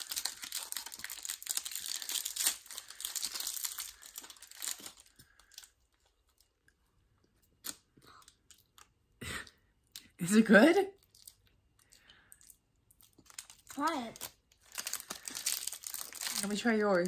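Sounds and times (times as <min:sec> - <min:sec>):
plastic wrapper crinkling: 0:00.0 - 0:06.8, 0:10.9 - 0:17.0.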